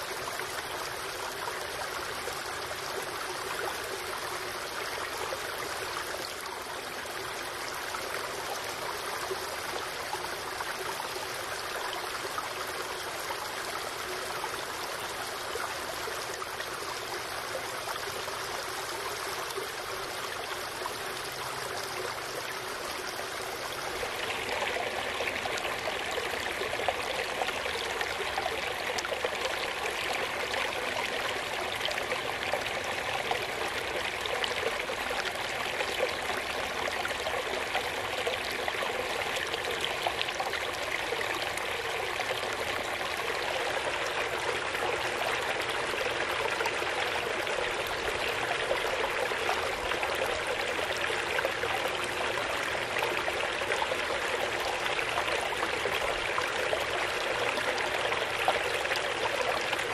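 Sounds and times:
stream trickling over rocks: 0:00.0 - 0:59.9
small waterfall rushing: 0:16.8 - 0:59.9.

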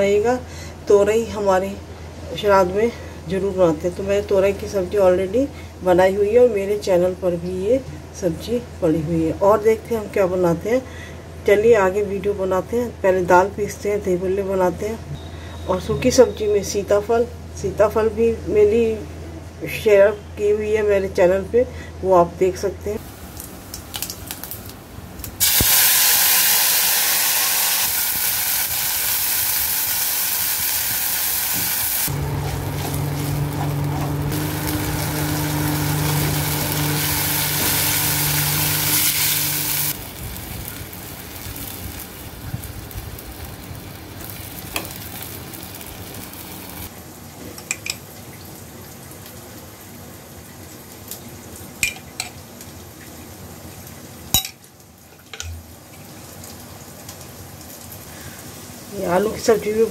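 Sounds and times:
oil sizzling in a pan: 0:25.4 - 0:47.0
low hum: 0:32.1 - 0:40.2.

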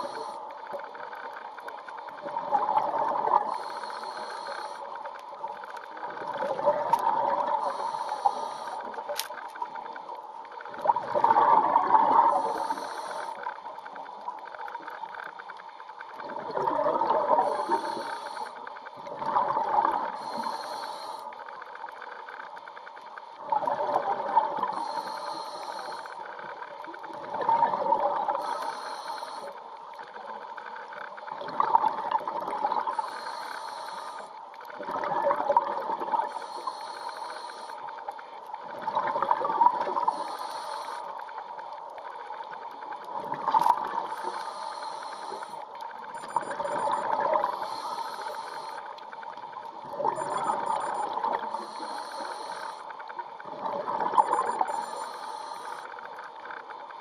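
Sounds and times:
regulator inhale hiss: 0:00.0 - 0:01.0, 0:03.4 - 0:05.3, 0:07.5 - 0:09.3, 0:12.3 - 0:13.6, 0:17.4 - 0:18.9, 0:20.1 - 0:21.7, 0:24.6 - 0:26.4, 0:28.3 - 0:29.7, 0:32.8 - 0:34.4, 0:36.2 - 0:38.1, 0:40.0 - 0:41.6, 0:44.0 - 0:49.4, 0:50.6 - 0:53.1, 0:54.4 - 0:56.1
exhaled bubbles rushing: 0:10.8 - 0:12.5, 0:16.2 - 0:17.4, 0:19.1 - 0:20.1, 0:31.4 - 0:32.9, 0:34.8 - 0:36.3, 0:38.8 - 0:40.1, 0:43.2 - 0:44.1.

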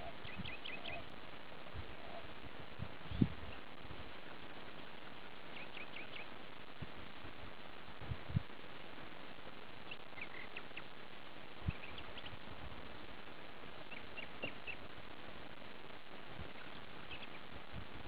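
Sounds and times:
high chirping animal calls: 0:00.0 - 0:01.1, 0:09.9 - 0:10.9
steady hiss: 0:00.0 - 0:18.0.

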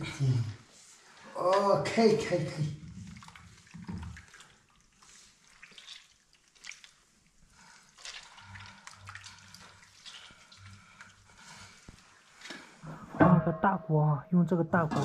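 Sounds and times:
wet splashes and drips: 0:02.2 - 0:12.8.

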